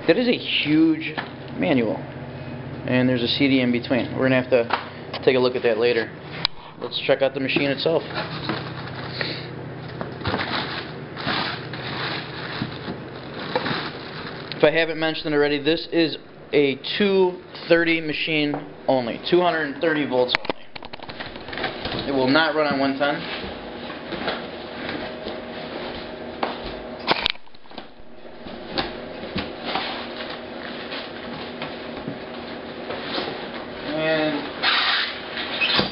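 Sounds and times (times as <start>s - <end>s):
plastic bag crinkling: 10.3s - 14.7s.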